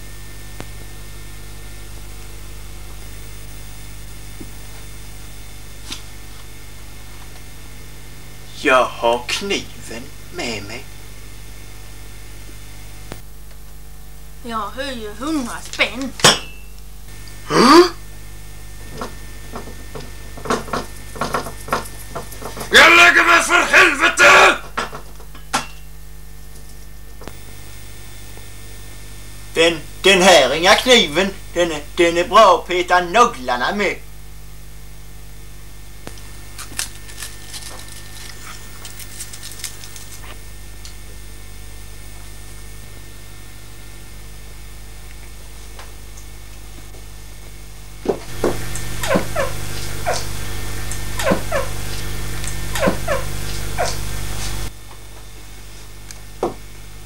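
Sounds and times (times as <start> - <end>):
low electrical hum: 0.0 - 57.0
rising vocal exclamation: 17.5 - 18.0, 22.7 - 24.7.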